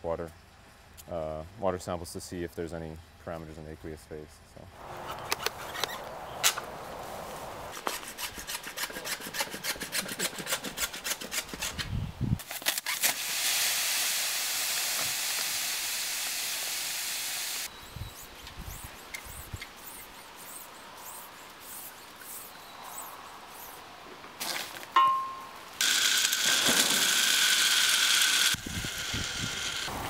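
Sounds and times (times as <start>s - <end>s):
scraping rasping strokes: 7.7s - 11.9s, 18.2s - 23.8s
sand pouring hiss: 12.8s - 17.7s, 28.8s - 30.0s.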